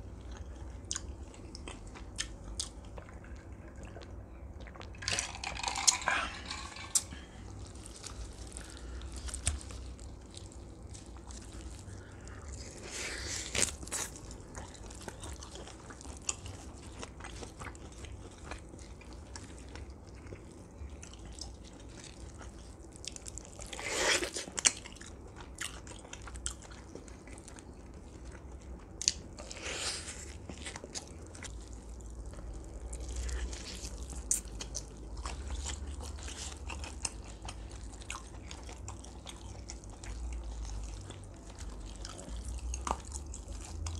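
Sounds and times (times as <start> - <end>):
biting and chewing food: 0.0 - 43.9
crunchy bites: 4.7 - 18.6.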